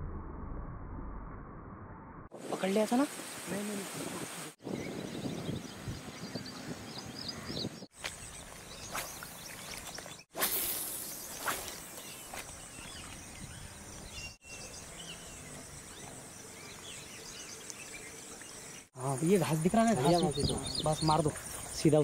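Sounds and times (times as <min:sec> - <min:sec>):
small birds chirping: 0:04.4 - 0:22.0
insects humming: 0:08.0 - 0:22.0
fishing rod cast whoosh: 0:08.9 - 0:12.4.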